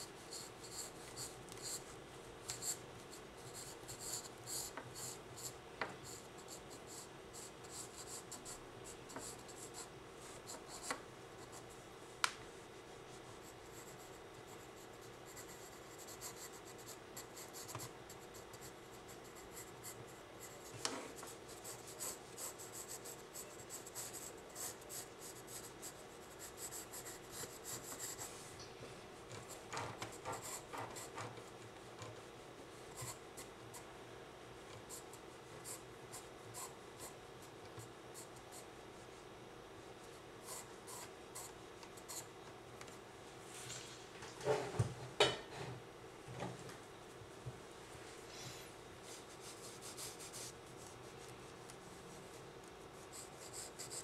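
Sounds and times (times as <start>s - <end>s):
pencil scratching on paper: 0.0s - 1.8s, 2.5s - 11.6s, 13.4s - 28.4s, 29.3s - 31.4s, 49.1s - 50.9s, 53.0s - 54.0s
faint steady hum: 0.0s - 54.0s.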